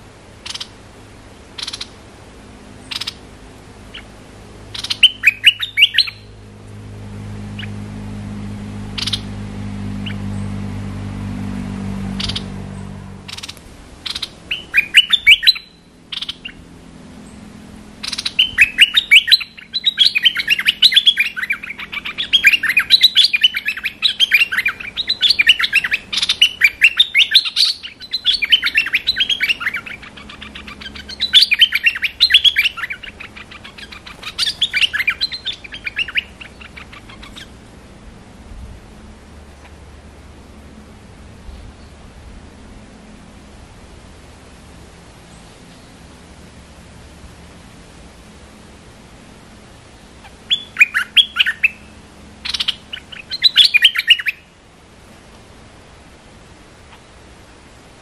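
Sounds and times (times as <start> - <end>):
songbird chirping: 0.0 - 0.8, 1.5 - 37.7, 49.6 - 54.6.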